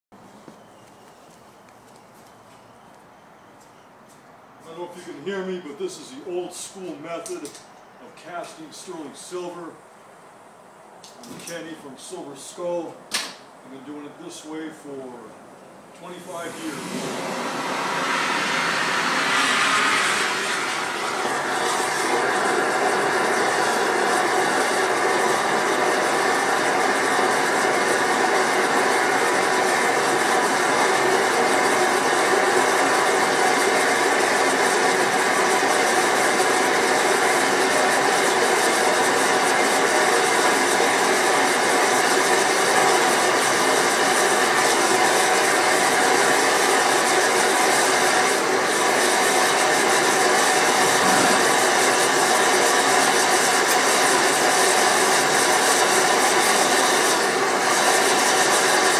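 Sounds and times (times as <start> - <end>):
burner flame rushing: 16.2 - 44.2, 46.5 - 58.9.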